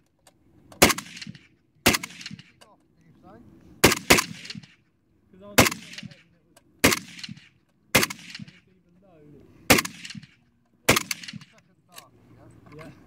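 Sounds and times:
machine gun single shots: 0.8s - 2.5s, 3.8s - 4.7s, 5.6s - 6.2s, 6.8s - 8.6s, 9.7s - 11.6s.

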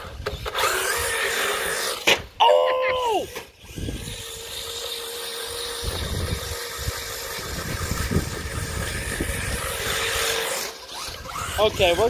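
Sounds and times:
electric motor whine: 0.0s - 12.0s
rubber tyres on concrete: 3.3s - 12.0s.

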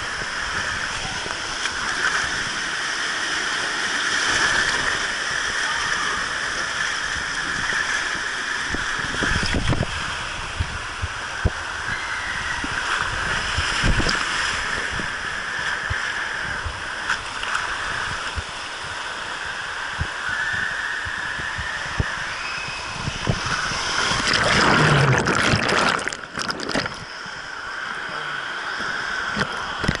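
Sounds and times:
water rushing down a slide: 0.0s - 27.1s
splash into pool: 23.3s - 27.0s.

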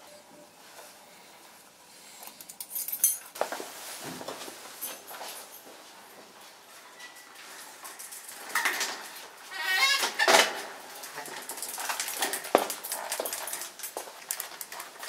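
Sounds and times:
bicycle metal clanking and rattling: 6.9s - 9.2s, 9.8s - 15.0s.

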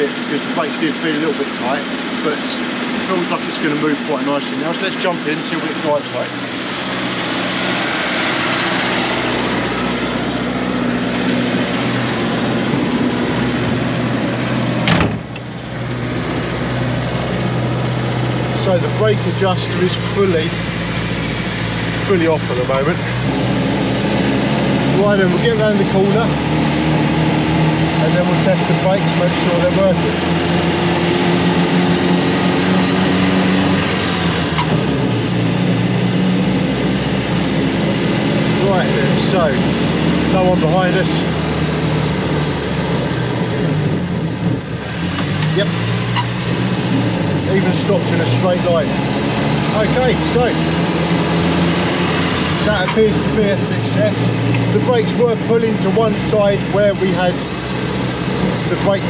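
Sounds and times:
car engine idling: 0.0s - 59.0s
car door shutting: 14.8s - 15.5s.

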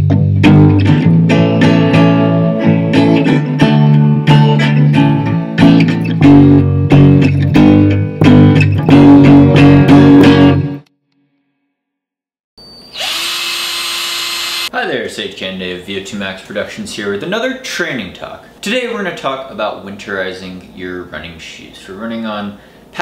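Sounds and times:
electric bass line: 0.0s - 10.9s
guitar strumming chords: 0.0s - 10.9s.

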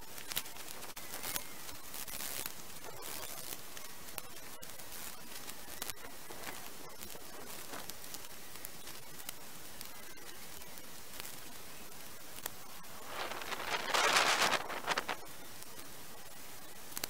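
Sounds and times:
twigs snapping and rustling: 13.0s - 15.3s.

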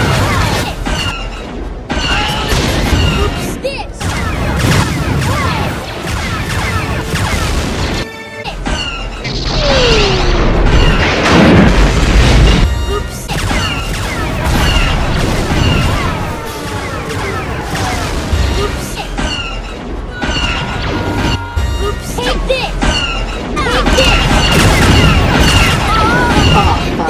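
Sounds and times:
explosions: 4.0s - 8.0s, 9.2s - 19.2s, 23.9s - 27.0s
orchestral music: 12.6s - 22.6s.

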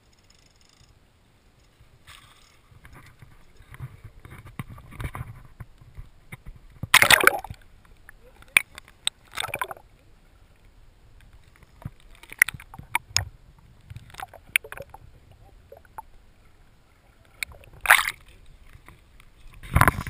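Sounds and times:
water splashing: 6.8s - 10.1s, 11.4s - 20.0s
underwater knocks and clicks: 11.3s - 16.1s, 17.3s - 20.0s.

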